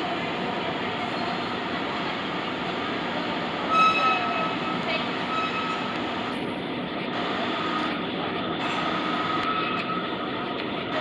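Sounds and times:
vehicle rumble and hiss inside cabin: 5.9 - 11.0.

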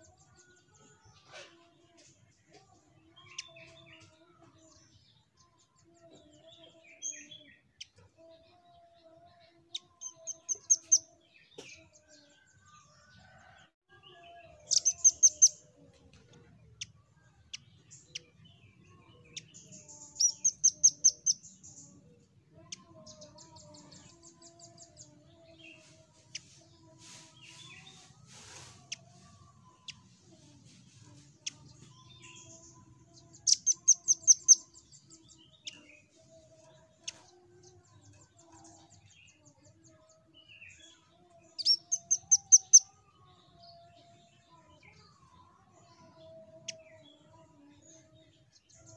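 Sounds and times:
bird chipping calls: 20.2 - 21.4.

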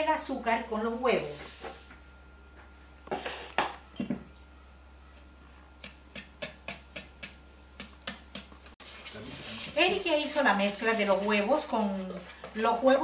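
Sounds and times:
whisk clicking against metal bowl: 5.8 - 8.8.

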